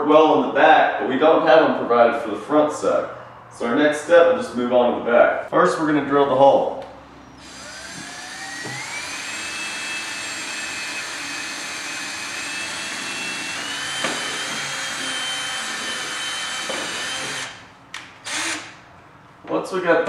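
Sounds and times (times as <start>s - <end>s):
cordless drill motor whine: 7.3s - 17.6s, 18.2s - 18.7s
drill click: 7.4s - 18.8s.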